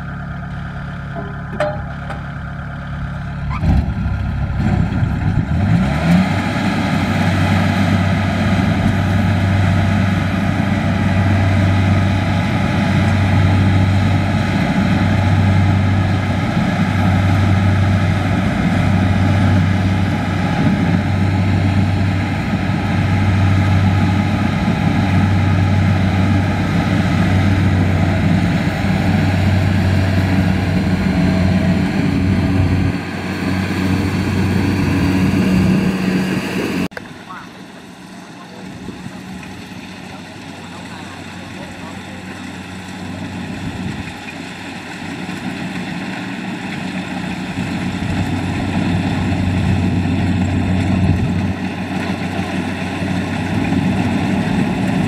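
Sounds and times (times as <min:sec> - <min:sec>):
diesel engine hum: 0:00.0 - 0:55.0
machinery clatter and whirr: 0:11.4 - 0:55.0.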